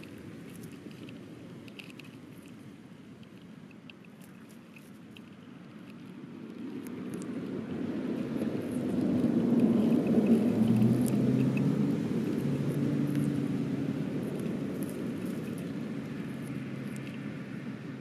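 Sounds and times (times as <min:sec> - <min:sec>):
faint small clicks: 0:00.0 - 0:02.6, 0:03.2 - 0:07.4, 0:14.4 - 0:17.3
low engine rumble: 0:07.2 - 0:18.0.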